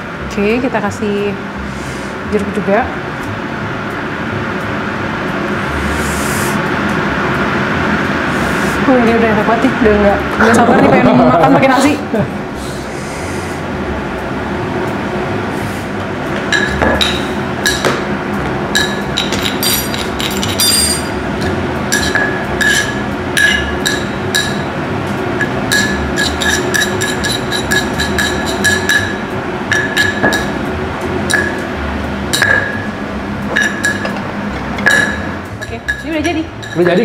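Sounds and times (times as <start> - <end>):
steady low hum: 0.0 - 37.0
utensil clinking on dish: 18.8 - 21.2, 25.7 - 29.1, 34.8 - 37.0.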